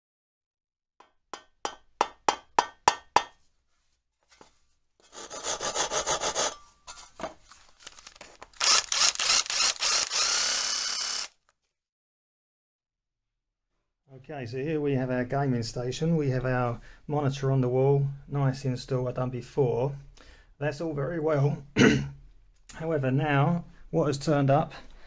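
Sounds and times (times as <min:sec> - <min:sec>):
saw rasping through wood: 0:05.0 - 0:06.7.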